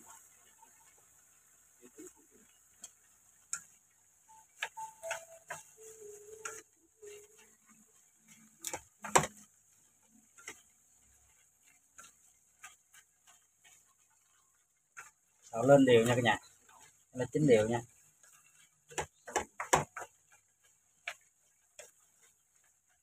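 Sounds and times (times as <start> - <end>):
chopsticks knocking against wok: 4.4 - 15.5, 17.8 - 23.0.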